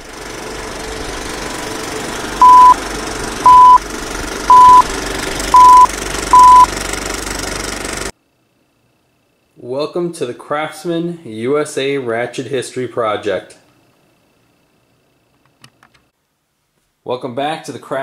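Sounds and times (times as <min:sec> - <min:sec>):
loud countdown beeps: 0:02.4 - 0:02.8, 0:03.5 - 0:03.8, 0:04.5 - 0:04.9, 0:05.5 - 0:06.7.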